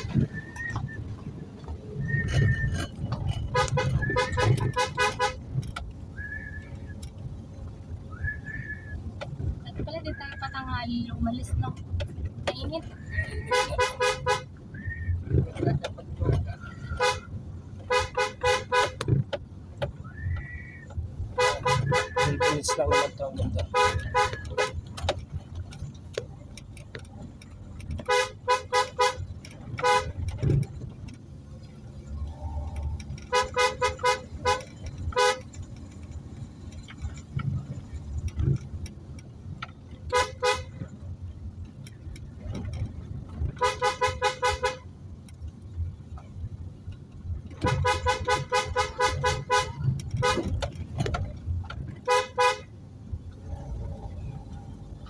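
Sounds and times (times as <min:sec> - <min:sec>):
car engine and tyre rumble: 0:00.0 - 0:55.0
car horn short rapid beeps: 0:03.4 - 0:05.4, 0:13.2 - 0:14.5, 0:16.8 - 0:19.0, 0:21.3 - 0:24.8, 0:28.0 - 0:30.3, 0:33.3 - 0:35.4, 0:40.1 - 0:40.8, 0:43.6 - 0:44.8, 0:47.6 - 0:50.6, 0:52.0 - 0:52.7.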